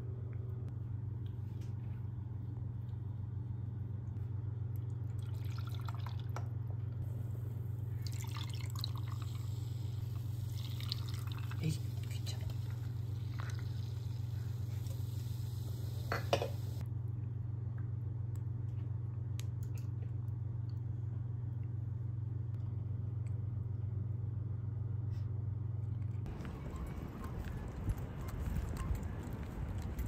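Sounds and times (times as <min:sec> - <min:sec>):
steady low hum: 0:00.0 - 0:30.0
city street traffic: 0:26.3 - 0:30.0.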